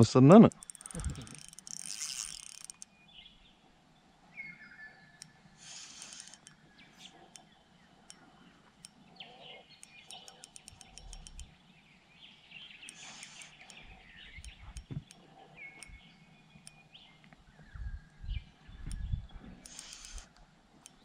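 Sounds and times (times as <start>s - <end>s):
faint outdoor ambience: 0.0s - 21.0s
fast high ticks: 0.4s - 2.9s, 5.2s - 8.2s, 9.8s - 11.5s, 12.8s - 15.2s, 19.6s - 21.0s
birds whistling and chirping: 4.3s - 5.2s, 11.8s - 20.2s.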